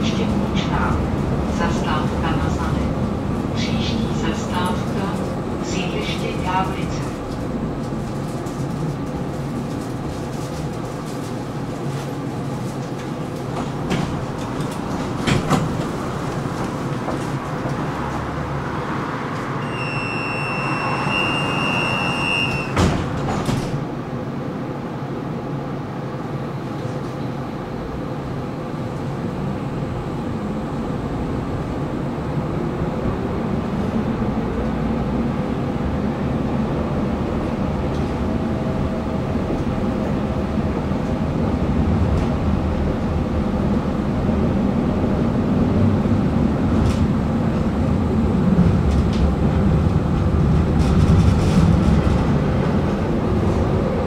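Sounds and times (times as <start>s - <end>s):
tram cabin rumble: 0.0s - 54.0s
electronic door warning tone: 19.6s - 22.8s
doors shutting thump: 22.7s - 23.8s.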